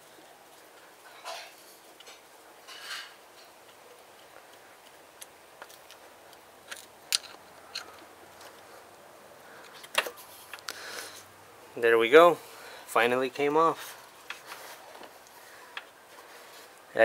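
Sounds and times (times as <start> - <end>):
small metal clicks and scrapes: 1.0 - 8.7.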